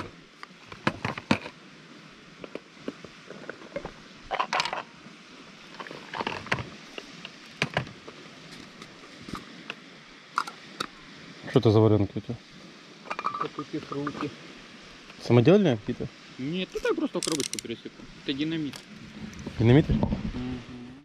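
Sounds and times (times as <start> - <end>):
fishing tackle clicking and knocking: 3.8 - 4.9, 17.1 - 17.7.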